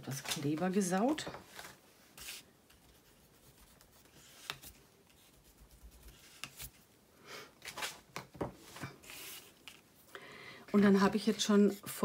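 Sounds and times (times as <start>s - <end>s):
paper rustling: 0.0s - 6.8s, 7.6s - 9.9s.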